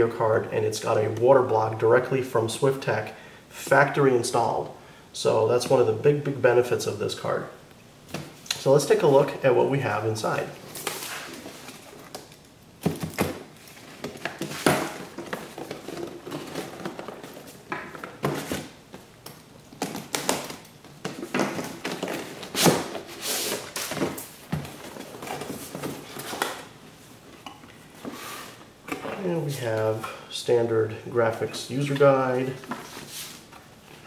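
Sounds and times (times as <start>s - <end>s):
cardboard scraping rustles: 10.5s - 12.3s, 13.4s - 18.8s, 21.1s - 26.8s, 27.8s - 29.8s, 31.8s - 34.0s.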